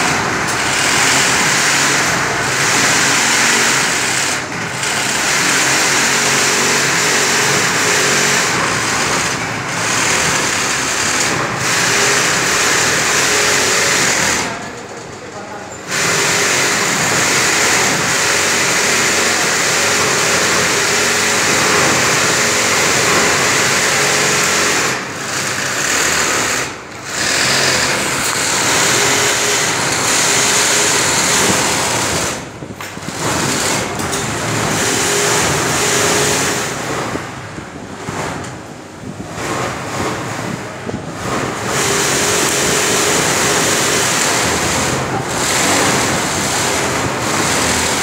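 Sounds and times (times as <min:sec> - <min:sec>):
sewing machine running fast: 0:00.0 - 0:48.0.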